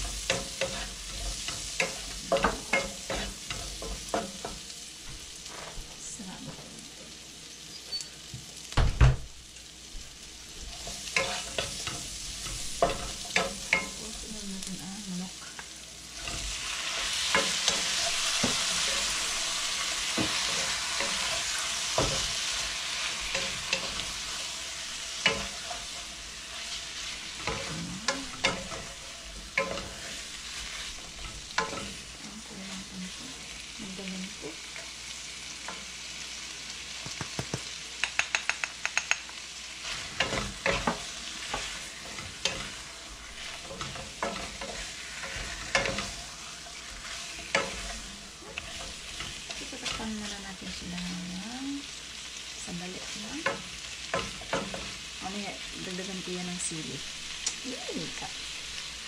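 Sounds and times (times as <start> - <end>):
wooden spatula scraping wok: 0.0 - 6.6, 10.5 - 35.0, 39.8 - 52.0
chicken and onions sizzling: 0.0 - 59.0.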